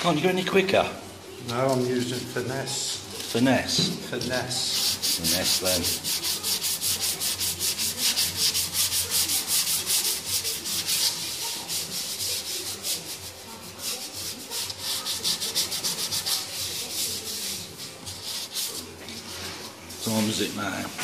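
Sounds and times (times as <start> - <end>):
sandpaper block scratching metal: 4.6 - 18.9.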